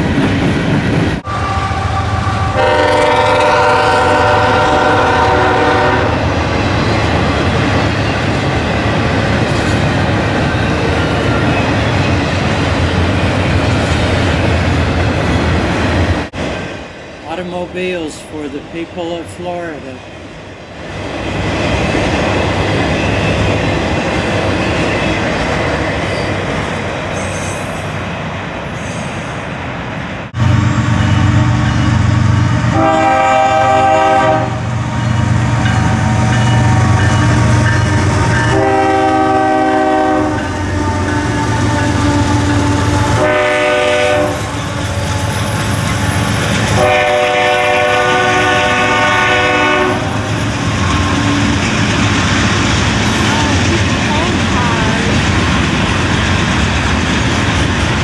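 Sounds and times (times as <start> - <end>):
diesel locomotive engines running: 0.0 - 58.0
freight train wheels rumbling: 0.0 - 58.0
multi-tone train horn: 1.2 - 6.4, 30.4 - 50.2.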